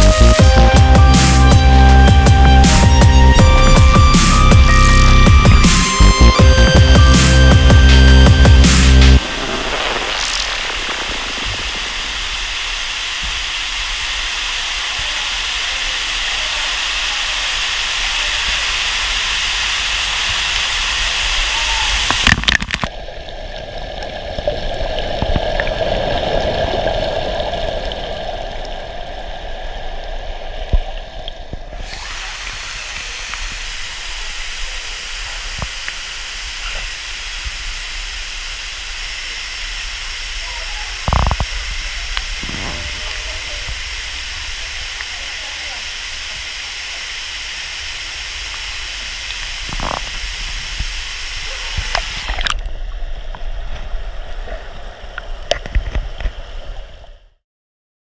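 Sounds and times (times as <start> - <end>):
water splashing into pool: 8.6 - 15.9, 20.1 - 39.4, 40.0 - 53.5
muffled underwater sound: 39.3 - 47.5, 48.8 - 57.2.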